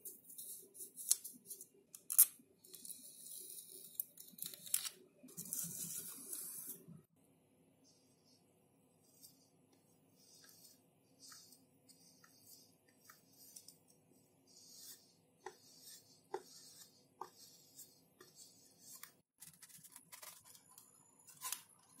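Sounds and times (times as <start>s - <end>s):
iron rubbing over tape: 14.5s - 19.2s.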